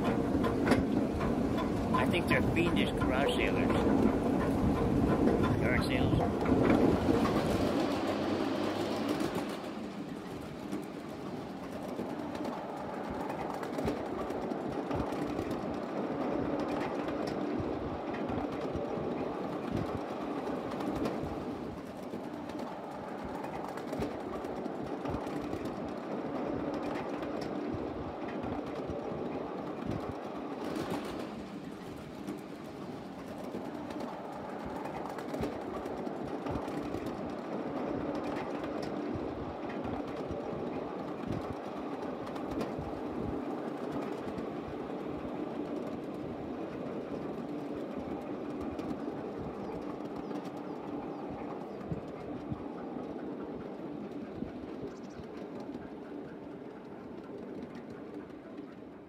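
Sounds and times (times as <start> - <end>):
track clicks: 0.0 - 8.4
train wheels rumbling on rail: 0.0 - 59.0.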